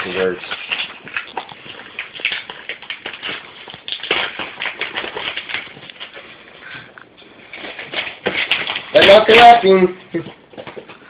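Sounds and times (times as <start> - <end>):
packaging paper crinkling: 0.0 - 6.7, 7.3 - 11.0.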